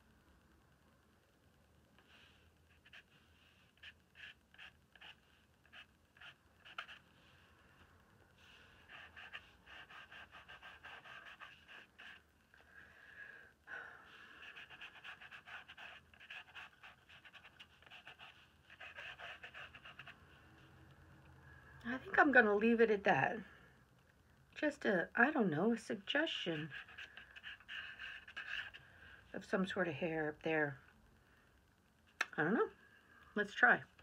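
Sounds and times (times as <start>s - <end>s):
pencil scratching on paper: 2.0s - 7.5s, 8.4s - 12.3s, 14.3s - 20.2s, 26.1s - 28.8s.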